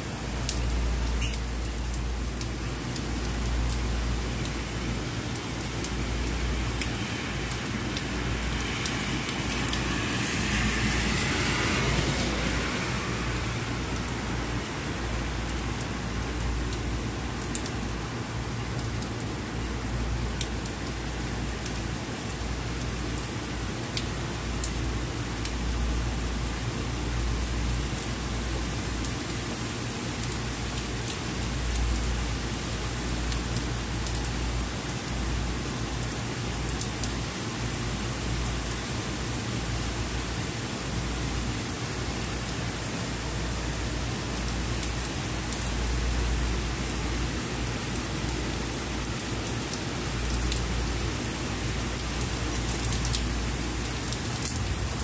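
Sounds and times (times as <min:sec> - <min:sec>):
rain on wet street: 0:00.0 - 0:55.0.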